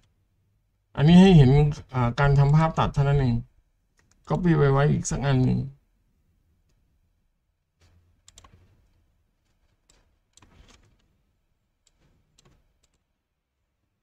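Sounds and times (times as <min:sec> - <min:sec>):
mouse and keyboard clicking: 0:07.8 - 0:08.8.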